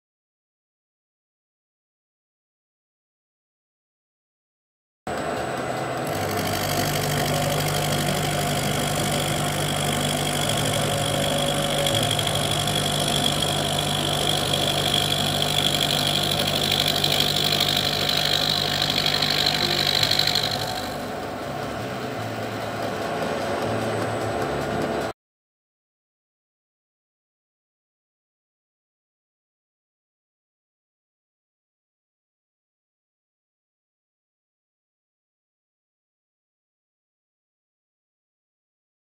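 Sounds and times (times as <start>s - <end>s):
high cutting whine: 5.1s - 25.1s
milling machine motor hum: 5.1s - 25.1s.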